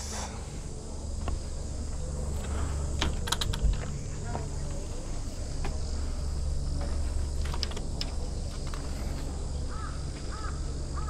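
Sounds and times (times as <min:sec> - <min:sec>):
steady low rumble: 0:00.0 - 0:11.0
bird harsh calls: 0:09.6 - 0:11.0.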